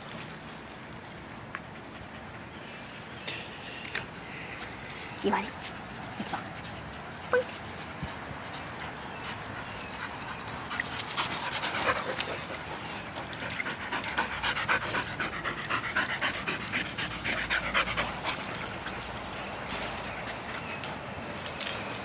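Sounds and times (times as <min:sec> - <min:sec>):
dog panting: 0:05.2 - 0:21.0.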